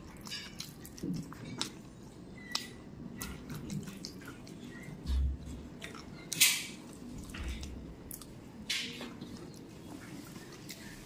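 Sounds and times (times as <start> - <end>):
person chewing: 0.0 - 11.0
lip and tongue clicks: 2.4 - 5.1.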